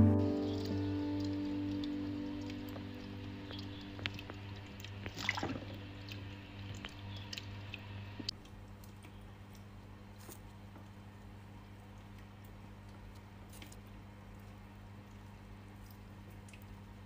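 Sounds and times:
aquarium filter humming: 0:00.0 - 0:17.0
water dripping: 0:00.1 - 0:17.0
turtle splashing into water: 0:01.5 - 0:07.8.

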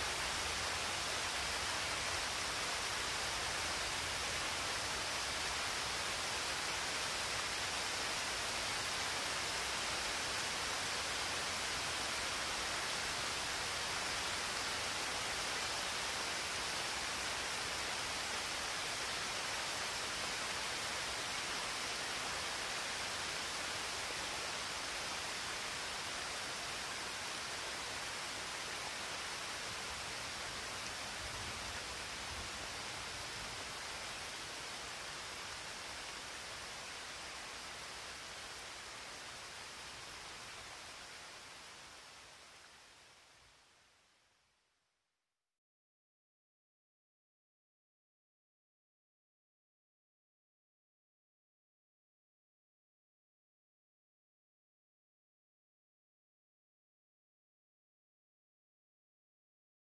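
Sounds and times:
steady hiss: 0:00.0 - 0:44.9.

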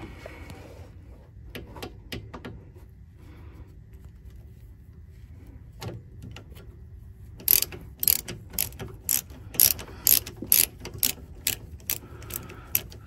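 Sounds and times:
ratchet wrench clicking: 0:07.4 - 0:13.0.

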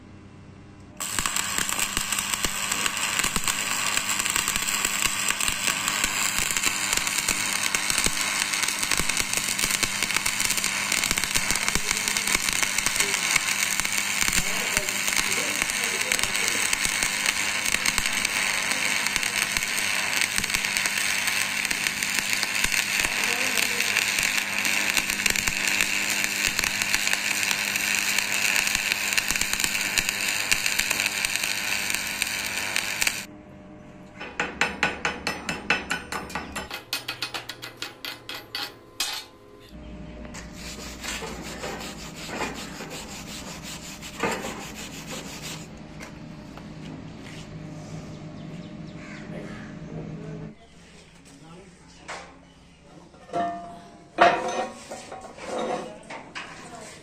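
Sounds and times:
welding arc crackling: 0:01.0 - 0:33.3, 0:40.5 - 0:45.7.

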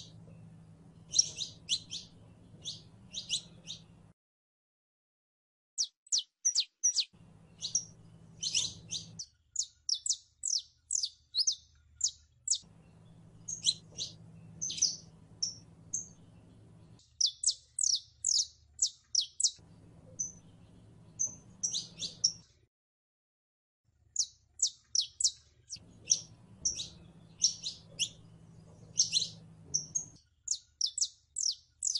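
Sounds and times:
finch singing high chirps: 0:00.0 - 0:04.0, 0:05.8 - 0:22.5, 0:24.2 - 0:31.9.

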